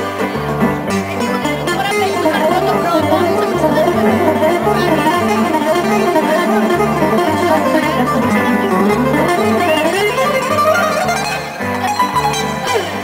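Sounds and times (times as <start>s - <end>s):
plucked string accompaniment: 0.0s - 13.0s
bowed string melody: 0.5s - 13.0s
repeating bass line: 1.4s - 11.2s.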